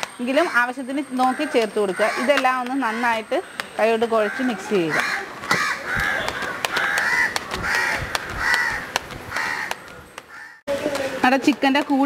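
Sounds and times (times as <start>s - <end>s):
crow cawing: 0.4s - 3.2s, 4.2s - 10.6s.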